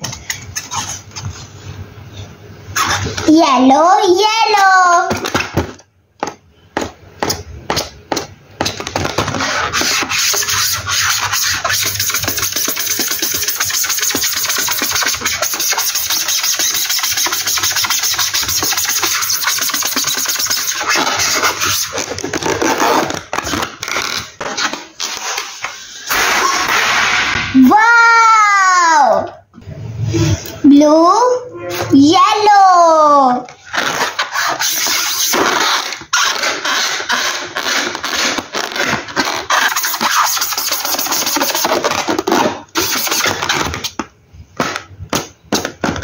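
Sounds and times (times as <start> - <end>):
balloons rubbing squeaking: 0.0 - 1.8, 2.7 - 3.2, 9.1 - 26.1, 33.6 - 44.0.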